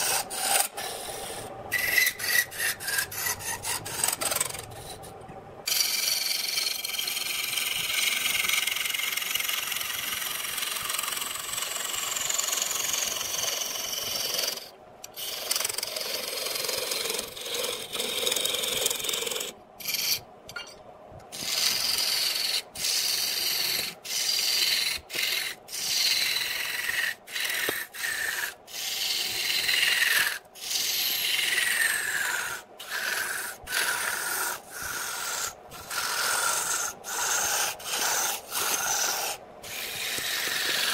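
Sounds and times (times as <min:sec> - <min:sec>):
lathe gouge cutting wood: 0:00.0 - 0:04.5, 0:05.7 - 0:07.4, 0:21.5 - 0:40.9.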